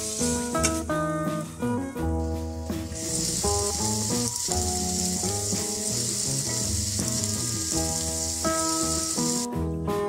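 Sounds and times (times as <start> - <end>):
food sizzling in a frying pan: 0.0 - 0.6, 2.5 - 9.5
guitar music: 0.0 - 10.0.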